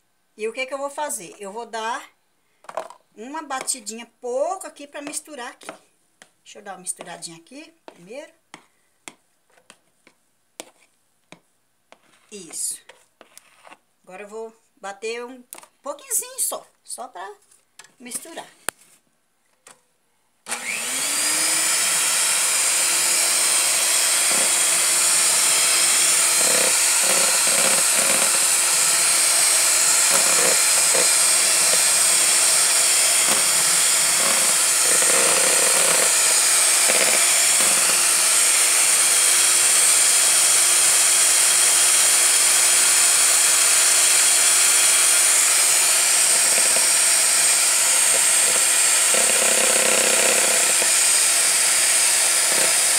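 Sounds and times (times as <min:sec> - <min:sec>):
electric mixer whining: 0:20.5 - 0:52.9.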